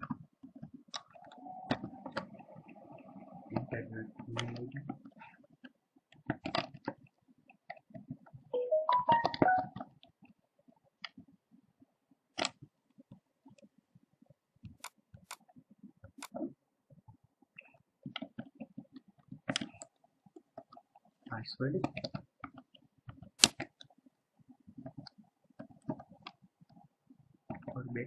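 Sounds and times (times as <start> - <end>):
brief pitched tone: 8.6 - 9.8
mouse and keyboard clicks: 12.4 - 12.6, 14.7 - 16.4.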